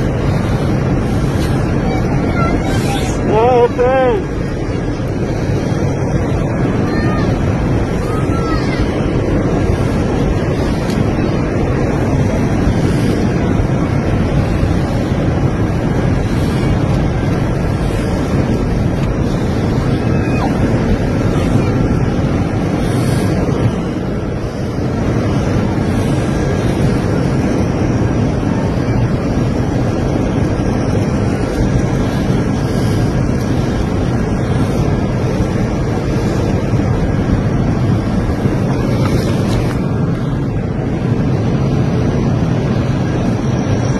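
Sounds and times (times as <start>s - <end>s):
airliner cabin engine roar: 0.0s - 43.9s.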